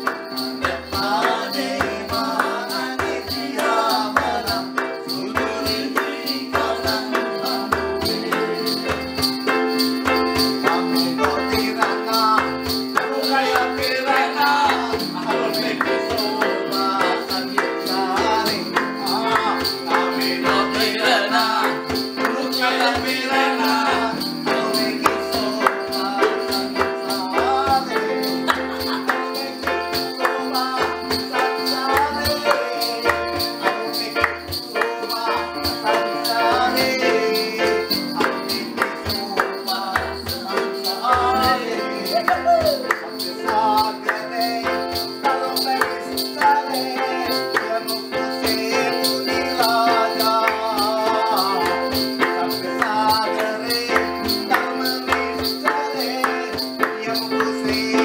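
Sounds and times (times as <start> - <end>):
men singing: 0.0 - 58.0
upright piano: 0.0 - 58.0
hand drum beat: 37.8 - 46.6.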